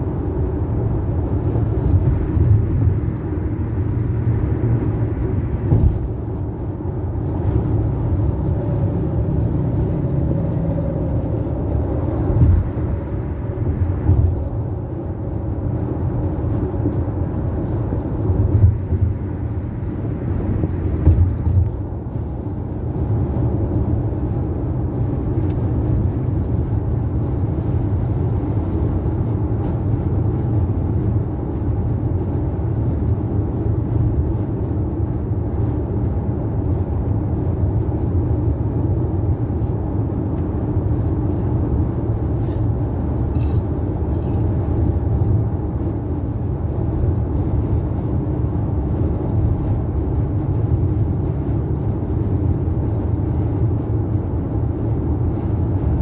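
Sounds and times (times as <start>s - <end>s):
car road noise rumble: 0.0s - 56.0s
car bumps: 5.6s - 6.2s, 21.0s - 21.6s.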